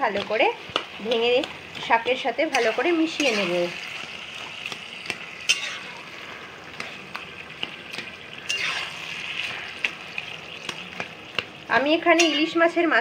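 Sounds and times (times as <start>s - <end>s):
metal spatula tapping and scraping pan: 0.0s - 3.7s, 4.6s - 6.0s, 6.7s - 9.0s, 10.6s - 12.8s
fish sizzling in a pan: 0.0s - 13.0s.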